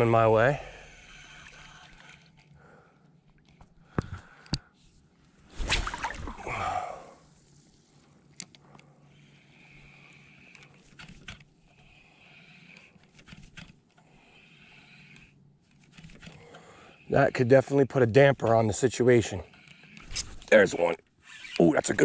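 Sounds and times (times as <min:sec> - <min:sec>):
fishing reel cranking: 0:00.0 - 0:02.6, 0:09.1 - 0:17.2, 0:19.3 - 0:22.0
water splashing: 0:05.6 - 0:06.8.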